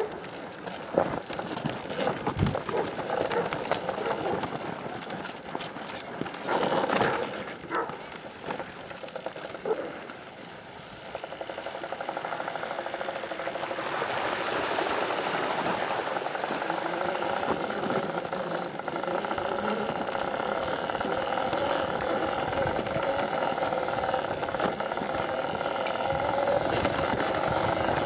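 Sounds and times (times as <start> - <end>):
electric motor pulsing: 11.0 - 28.0.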